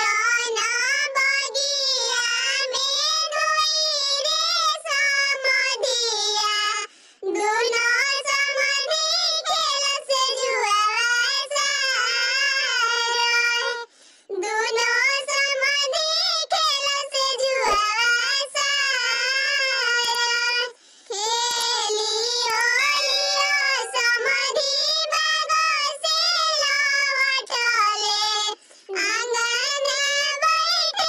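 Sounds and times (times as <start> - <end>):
high pitch-shifted voice singing: 7.2 - 31.0.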